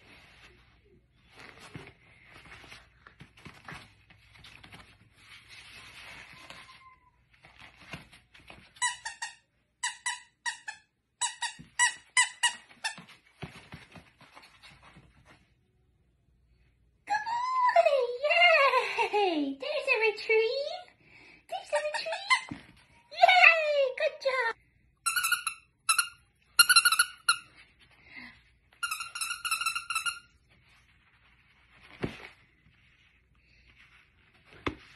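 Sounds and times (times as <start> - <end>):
soft rustling and shuffling: 0.0 - 8.8, 12.6 - 17.0, 27.4 - 28.8, 30.3 - 34.9
squeaky dog toy squeaking: 8.8 - 13.0, 21.7 - 22.5, 25.0 - 27.5, 28.8 - 30.4.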